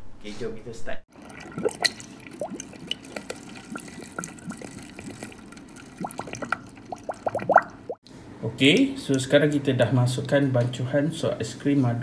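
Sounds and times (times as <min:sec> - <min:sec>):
bubbly plops: 0:01.1 - 0:08.0
liquid pouring and splashing: 0:01.1 - 0:08.0.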